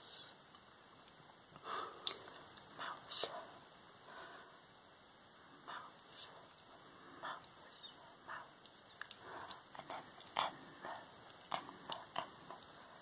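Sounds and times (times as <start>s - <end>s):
close-up whispering: 1.9s - 3.7s, 5.5s - 13.0s.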